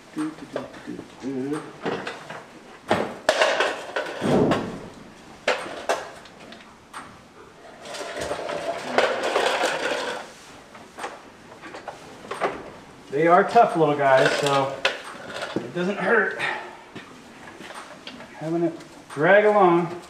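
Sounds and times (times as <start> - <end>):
scraping and rustling: 7.5 - 16.3.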